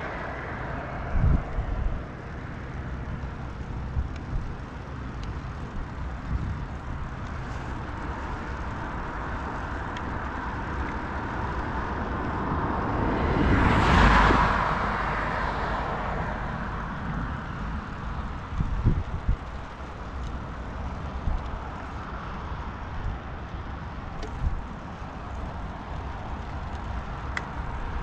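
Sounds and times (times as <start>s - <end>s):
vehicle passing by: 0.0s - 19.5s
steady low rumble: 0.0s - 28.0s.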